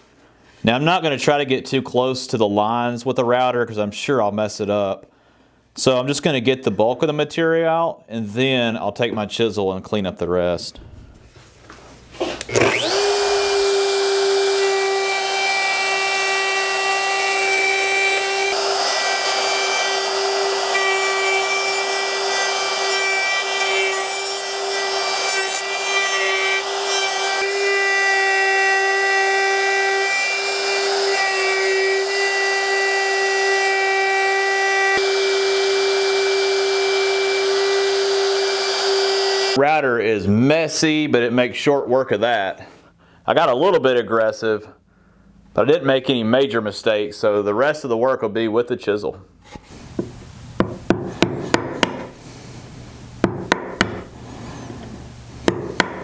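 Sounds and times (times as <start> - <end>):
router whining: 12.3 - 39.6.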